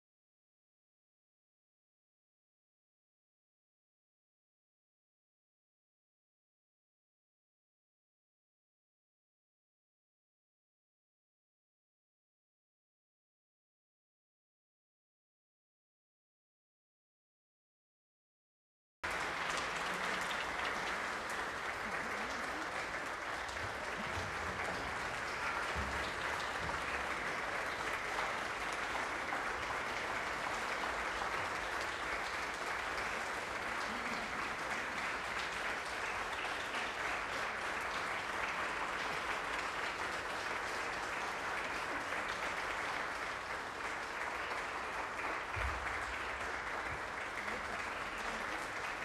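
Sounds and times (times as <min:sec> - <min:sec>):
audience applauding: 0:19.0 - 0:49.0.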